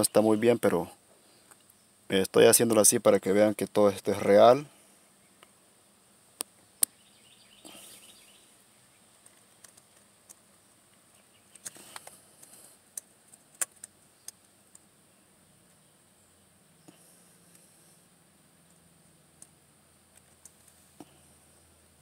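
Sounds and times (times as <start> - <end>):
light rustling: 9.1 - 14.9.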